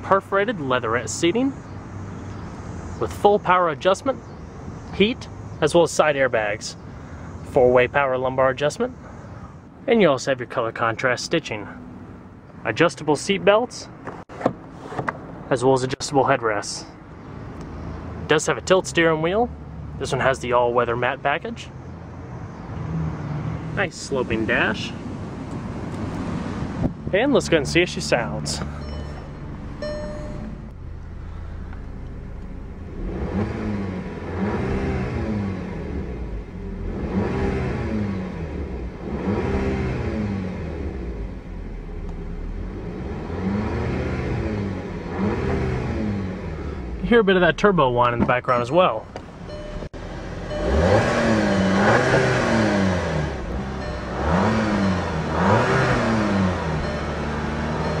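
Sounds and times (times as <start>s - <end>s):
car engine idling and revving: 0.0s - 9.9s, 16.9s - 58.0s
turbo whine: 49.3s - 56.0s, 56.8s - 58.0s.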